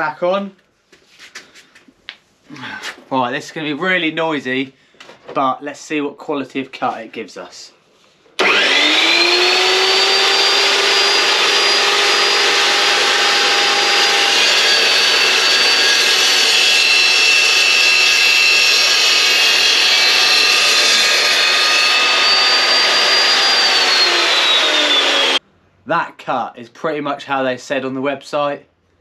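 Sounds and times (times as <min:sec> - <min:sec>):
chop saw whining through steel: 0:08.4 - 0:25.4.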